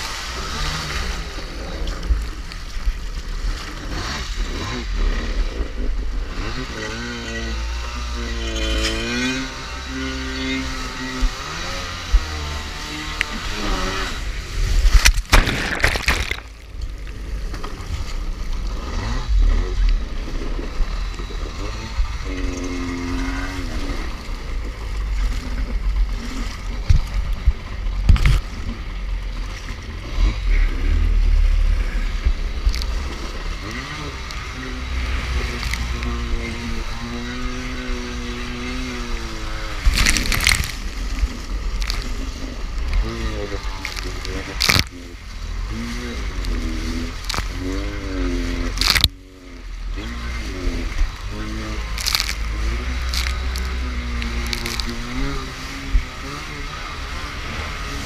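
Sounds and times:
jet ski engine running: 0:00.0 - 0:58.0
water sloshing: 0:00.0 - 0:58.0
water spray crashing: 0:13.5 - 0:16.7.

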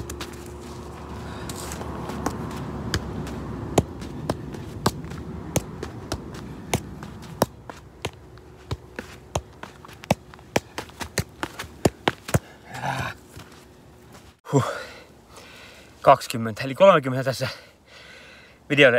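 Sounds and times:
football kicks: 0:01.5 - 0:13.5.

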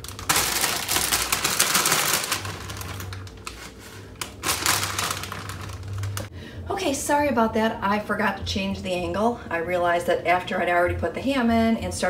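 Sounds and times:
plastic package crinkling: 0:00.0 - 0:06.3.

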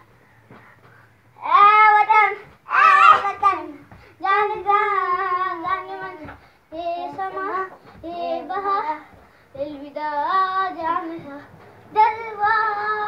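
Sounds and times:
boy singing unaccompanied: 0:01.4 - 0:13.0.

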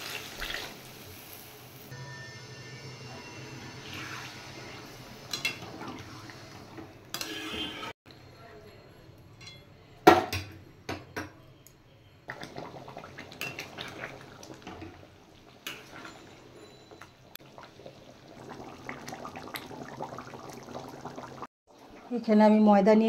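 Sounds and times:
curry sloshing and bubbling: 0:12.3 - 0:22.1.

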